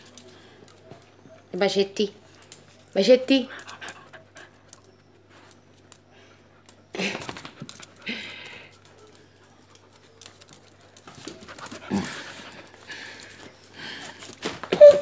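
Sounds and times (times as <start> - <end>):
dog panting: 3.4 - 5.0, 7.1 - 14.3.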